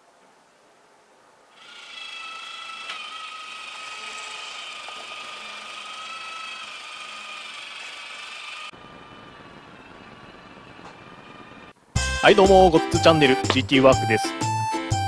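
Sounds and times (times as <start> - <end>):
electric motor whining: 1.6 - 11.8.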